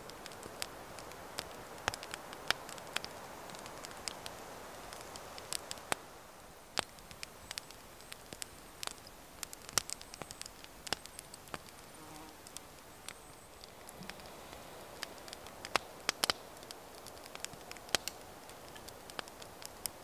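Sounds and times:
campfire crackling: 0.0s - 20.0s
faint high insect buzz: 11.8s - 12.4s.

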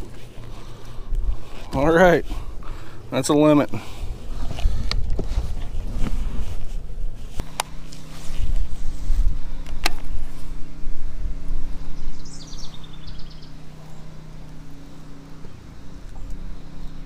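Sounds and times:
low electric hum: 0.0s - 17.0s
wind on microphone: 1.0s - 2.8s, 3.8s - 14.2s.

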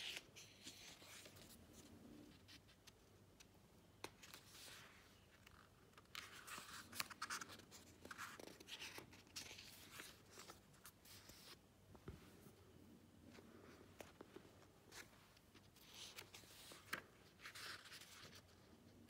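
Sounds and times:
book pages turning: 0.0s - 12.2s, 13.3s - 18.6s.

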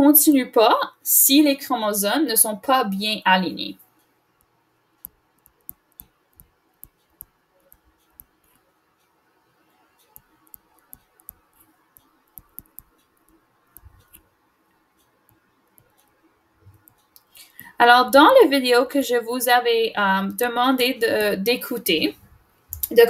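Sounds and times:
stylus tapping on tablet screen: 4.4s - 8.7s, 10.0s - 14.3s, 15.0s - 17.2s.

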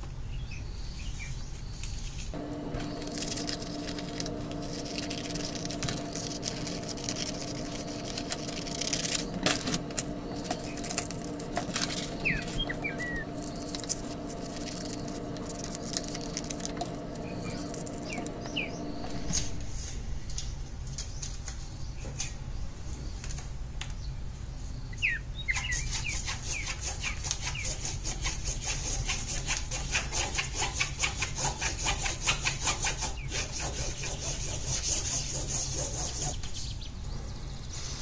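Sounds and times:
paper rustling: 2.0s - 20.0s
low hum: 2.2s - 21.9s
scissors snipping paper: 2.7s - 19.6s.

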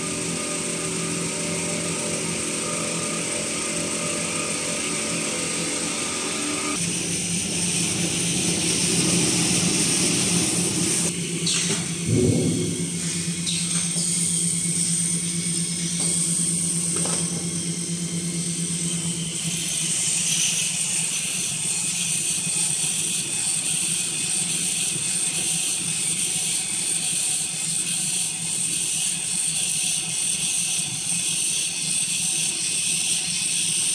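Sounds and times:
band saw pulsing hiss: 0.0s - 33.9s
paper rewinder machine humming: 0.0s - 33.9s.

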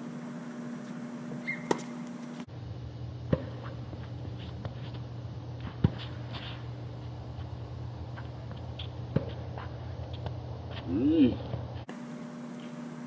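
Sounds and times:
low hum: 0.0s - 13.0s
tennis ball struck by racquets: 1.5s - 2.2s.

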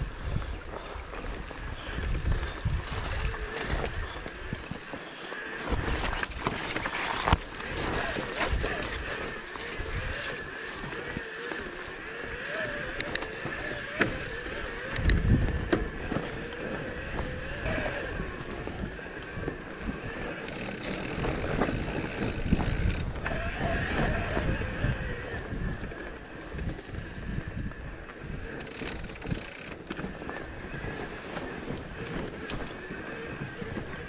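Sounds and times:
wind buffeting microphone: 0.0s - 5.0s, 5.6s - 34.0s
bike tyres and frame rattling: 0.0s - 34.0s.

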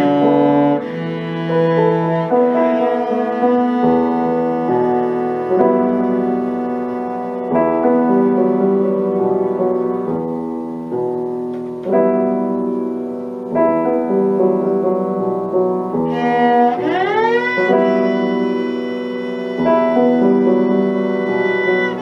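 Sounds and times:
bowed cello notes: 0.0s - 10.2s, 15.4s - 22.0s
piano chords: 0.0s - 22.0s.

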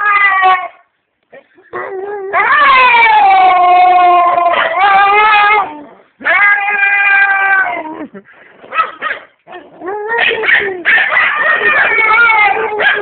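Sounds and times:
husky howling: 2.0s - 7.9s, 9.8s - 13.0s.

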